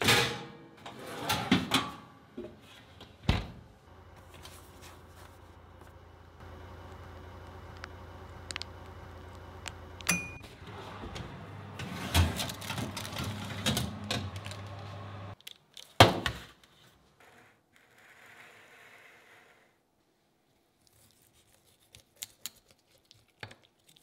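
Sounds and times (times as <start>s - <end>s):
oven humming: 3.3s - 15.4s
roasting tray scraping over rack: 10.7s - 14.2s.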